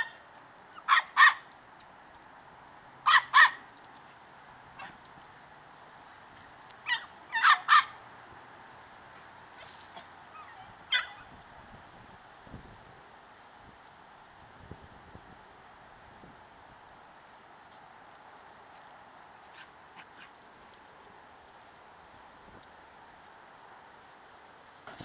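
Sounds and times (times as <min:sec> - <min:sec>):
puppy yipping: 0:00.8 - 0:01.4, 0:03.1 - 0:03.6, 0:06.9 - 0:08.0, 0:09.6 - 0:11.3.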